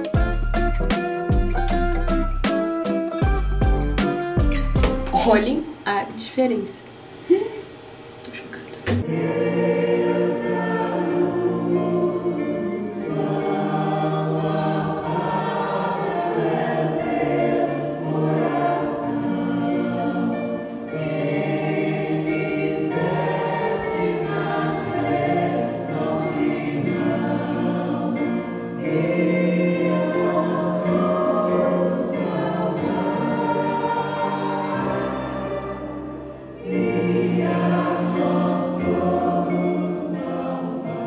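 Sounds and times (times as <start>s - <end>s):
choir singing a hymn: 8.9s - 41.0s.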